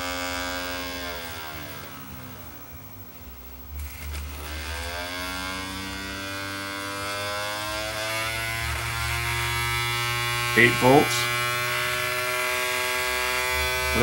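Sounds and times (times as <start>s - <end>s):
small motor whirring whine: 0.0s - 14.0s
brief crackle: 3.7s - 4.7s.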